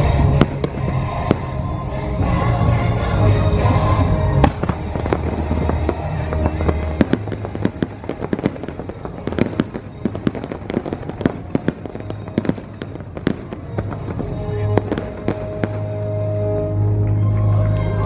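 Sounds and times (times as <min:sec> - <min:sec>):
fireworks bangs and crackles: 0:00.0 - 0:18.0
music playing: 0:00.0 - 0:18.0.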